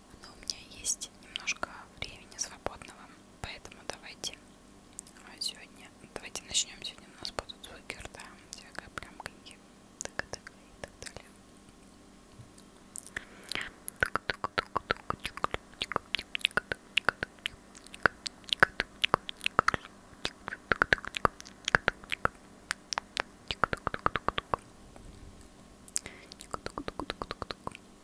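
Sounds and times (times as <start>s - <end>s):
wet lip and tongue clicks: 10.0s - 11.9s, 12.5s - 24.6s, 25.9s - 27.9s.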